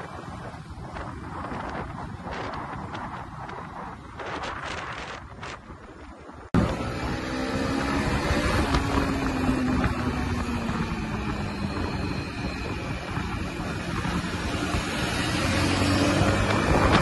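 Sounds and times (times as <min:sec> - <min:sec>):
wind on microphone: 0:00.0 - 0:17.0
motorcycle engine running: 0:06.6 - 0:17.0.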